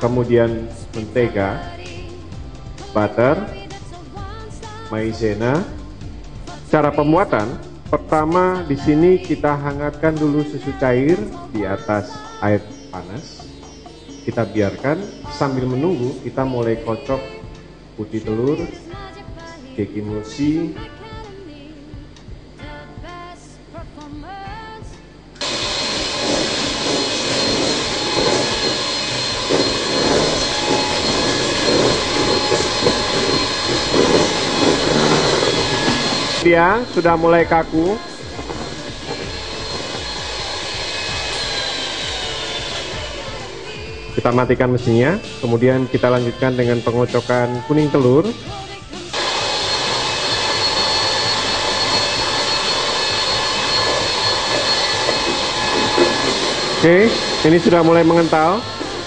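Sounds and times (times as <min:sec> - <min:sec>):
electric hand mixer whipping: 0:00.0 - 0:12.1, 0:25.4 - 0:59.0.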